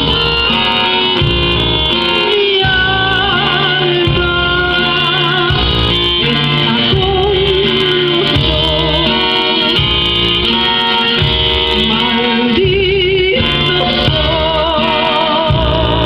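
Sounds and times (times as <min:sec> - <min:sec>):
electronic keyboard accompaniment: 0:00.0 - 0:16.0
woman singing with vibrato: 0:00.0 - 0:16.0.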